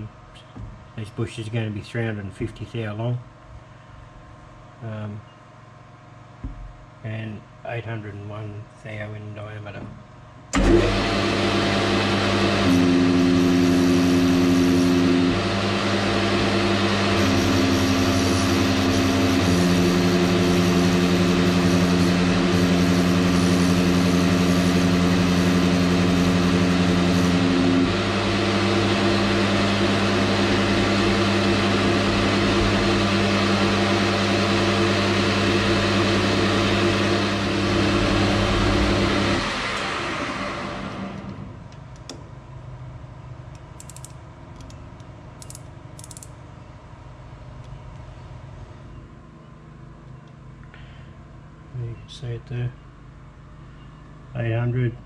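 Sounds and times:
metal lathe running: 0:10.6 - 0:41.4.

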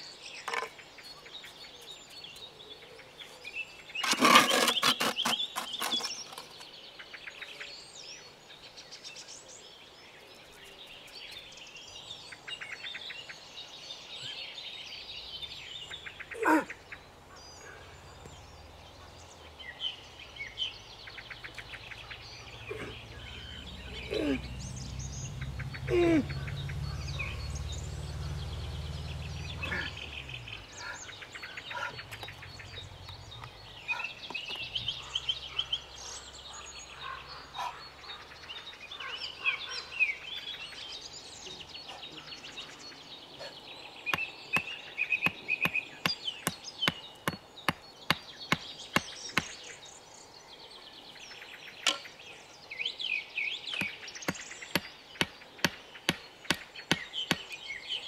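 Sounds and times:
songbirds singing and chirping: 0:00.0 - 0:58.0
sharp irregular knocks: 0:44.1 - 0:49.5.

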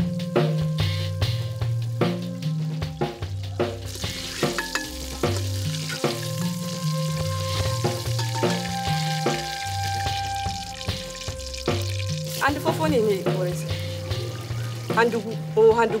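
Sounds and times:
background music with bass and beat: 0:00.0 - 0:16.0
oil sizzling in a pot: 0:00.8 - 0:15.6.

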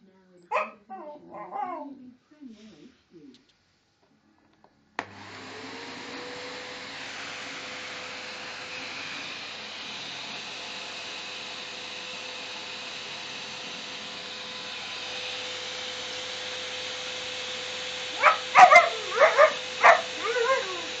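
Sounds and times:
puppy yipping and barking: 0:00.5 - 0:01.8, 0:18.2 - 0:20.8
vacuum cleaner running: 0:05.0 - 0:21.0.

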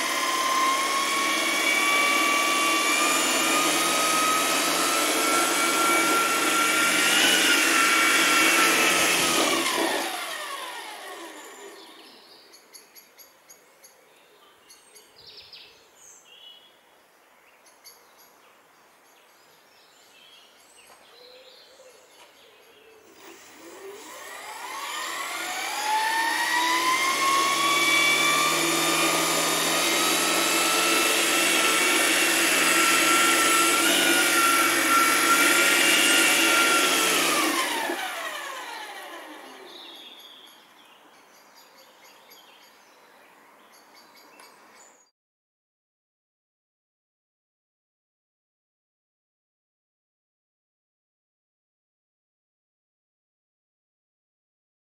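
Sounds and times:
model helicopter motor whine: 0:00.0 - 0:12.1, 0:23.1 - 0:40.0.

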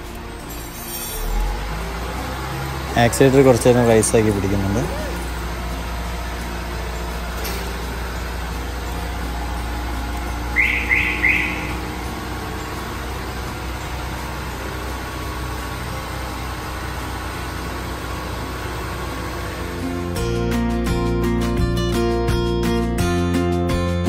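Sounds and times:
diesel engine running: 0:00.0 - 0:24.0
bird chirps: 0:10.5 - 0:13.1.

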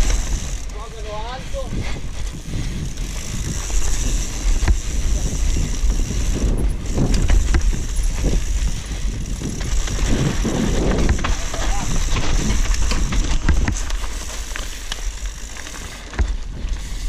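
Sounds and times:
bike rattling and knocking: 0:00.0 - 0:17.0
tyres rumbling on dirt: 0:00.0 - 0:17.0
wind buffeting microphone: 0:00.0 - 0:17.0.

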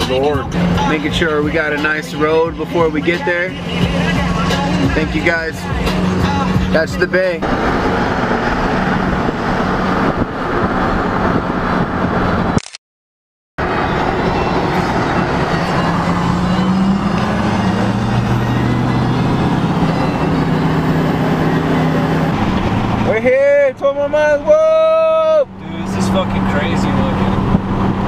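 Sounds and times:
wind and road noise: 0:00.0 - 0:12.8, 0:13.6 - 0:28.0
engine low hum: 0:13.6 - 0:23.2.

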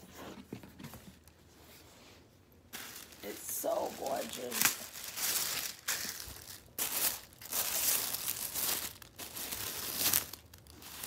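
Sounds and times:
tissue paper rustling: 0:02.7 - 0:11.0.

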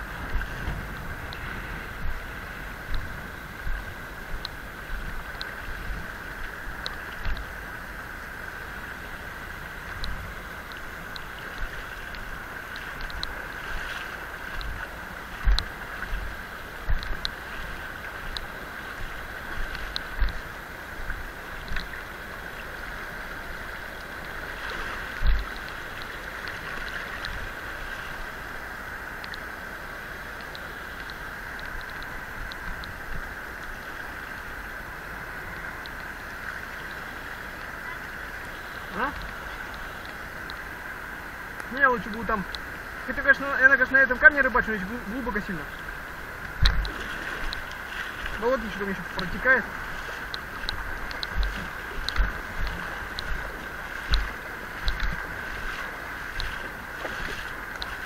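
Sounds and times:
river water rushing: 0:00.0 - 0:58.0
low thumps on microphone: 0:46.5 - 0:47.0, 0:50.8 - 0:55.7.

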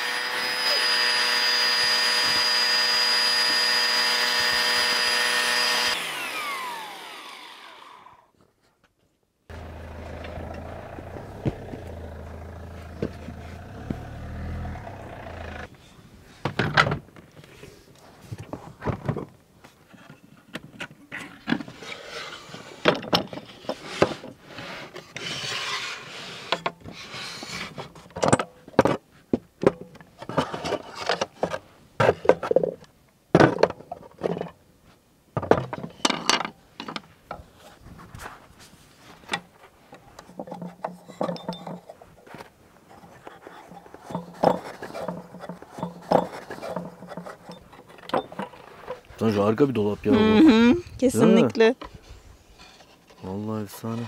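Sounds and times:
wooden parts knocking and scraping: 0:09.5 - 0:14.2, 0:16.4 - 0:17.5, 0:22.4 - 0:34.6, 0:35.4 - 0:38.4, 0:39.1 - 0:49.4
low steady hum: 0:09.5 - 0:15.7.

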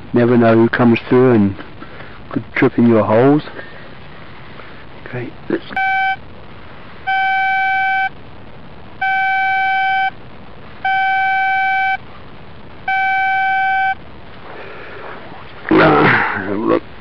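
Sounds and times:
metal detector beeps: 0:05.8 - 0:06.2, 0:07.1 - 0:08.1, 0:09.0 - 0:10.1, 0:10.8 - 0:12.0, 0:12.9 - 0:14.0.

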